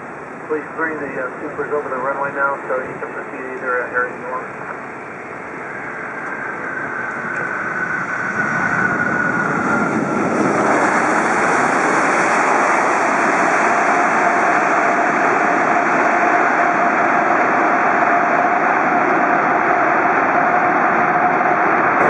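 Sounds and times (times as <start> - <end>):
faint engine whine: 0.0 - 22.0
jet engine roar: 0.0 - 22.0.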